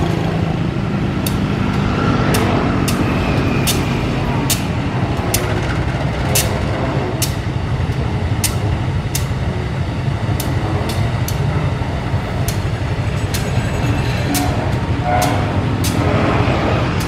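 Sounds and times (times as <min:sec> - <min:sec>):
locomotive engine rumbling: 0:00.0 - 0:17.0
sharp clicks: 0:08.4 - 0:09.4.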